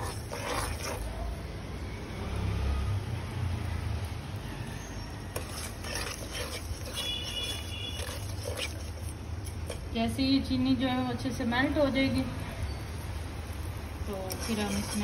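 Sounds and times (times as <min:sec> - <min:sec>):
spoon scraping pan: 0:00.0 - 0:01.1, 0:05.3 - 0:10.0, 0:14.1 - 0:15.0
syrup bubbling in pan: 0:00.0 - 0:02.2, 0:04.1 - 0:10.6, 0:12.6 - 0:15.0.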